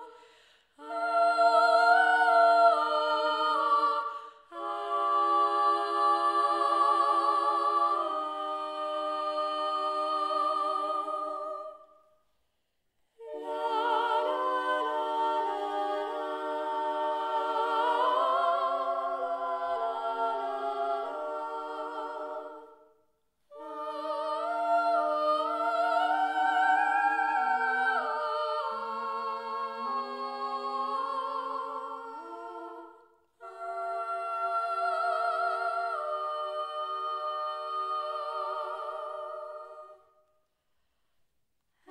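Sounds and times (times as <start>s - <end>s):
voices singing in harmony: 0.0s - 12.3s, 13.1s - 40.5s.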